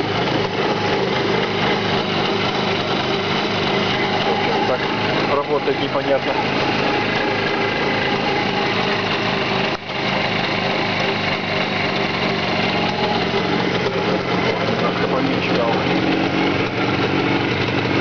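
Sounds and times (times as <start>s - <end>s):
two-stroke engine running: 0.0s - 18.0s.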